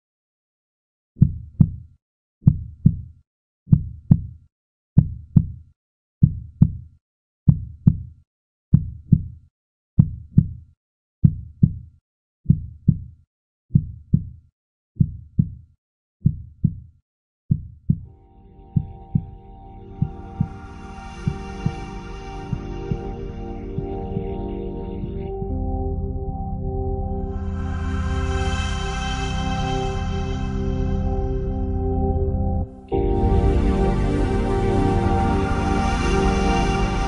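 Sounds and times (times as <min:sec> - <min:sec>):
heartbeat thumps: 0:02.4 - 0:03.1, 0:03.7 - 0:04.3, 0:06.2 - 0:06.8, 0:07.5 - 0:08.1, 0:10.0 - 0:10.5, 0:11.2 - 0:11.8, 0:12.5 - 0:13.1, 0:13.7 - 0:14.3, 0:15.0 - 0:15.6, 0:16.2 - 0:16.8, 0:17.5 - 0:18.0, 0:18.8 - 0:19.4, 0:20.0 - 0:23.2
music with sustained tones: 0:18.1 - 0:37.0.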